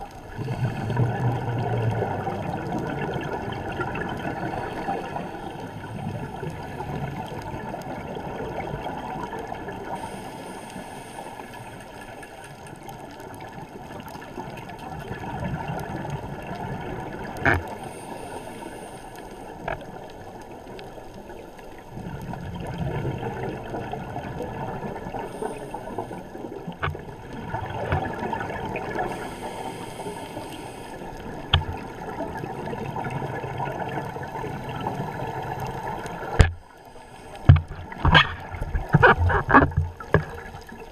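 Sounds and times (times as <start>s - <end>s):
underwater bubbling rumble: 0.0s - 10.6s, 11.8s - 18.2s, 19.4s - 40.9s
diver breathing through regulator: 10.0s - 12.0s, 17.7s - 19.5s, 25.1s - 26.3s, 28.9s - 31.3s.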